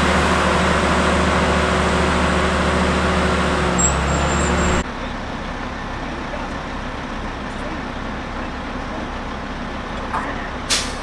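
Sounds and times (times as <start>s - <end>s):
diesel engine under load: 0.0s - 11.0s
thin high squeal: 3.8s - 4.8s.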